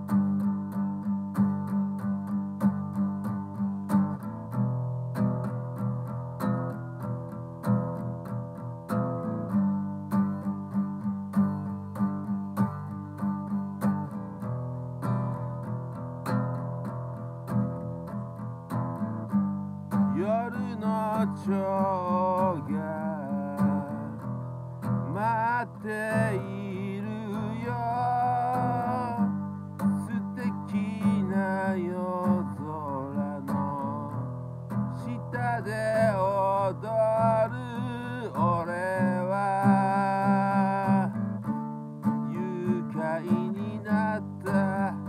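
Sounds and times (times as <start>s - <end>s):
strummed guitar chords: 0.0s - 45.0s
man singing: 20.0s - 24.3s, 25.0s - 34.3s, 34.9s - 45.0s.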